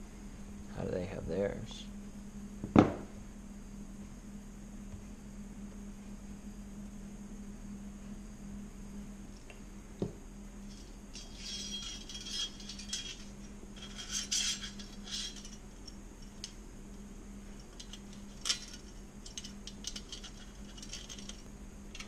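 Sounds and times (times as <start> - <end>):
steady low hum: 0.0 - 22.0
metal parts clinking: 10.7 - 16.6, 17.6 - 22.0.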